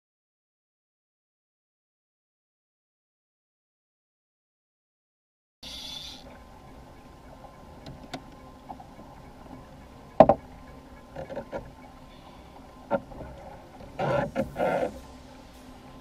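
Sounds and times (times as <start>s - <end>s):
faint water noise: 5.6s - 16.0s
sharp knocks on kayak: 10.2s - 10.4s.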